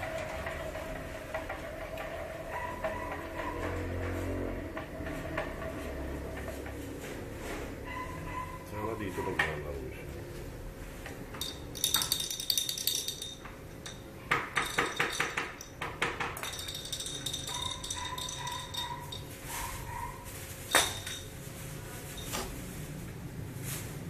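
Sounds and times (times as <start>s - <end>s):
small hard objects clinking: 11.3s - 22.4s.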